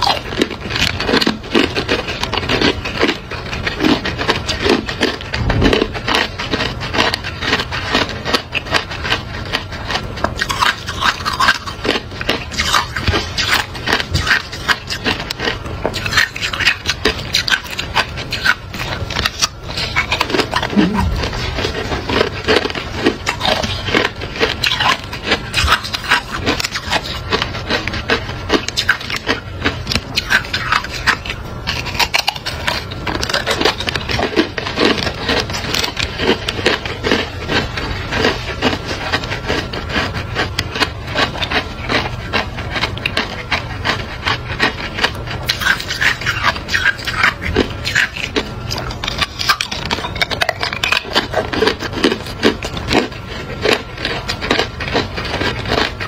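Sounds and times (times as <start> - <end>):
ice being chewed and crunched: 0.0 - 56.0.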